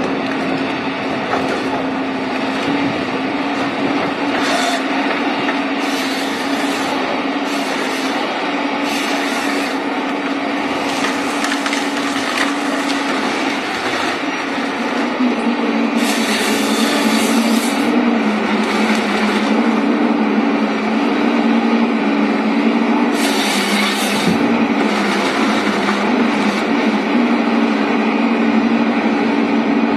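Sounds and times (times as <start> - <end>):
machine engine and hydraulics drone: 0.0 - 29.9
saw cutting through logs: 4.2 - 14.3, 15.9 - 19.8, 23.0 - 27.1.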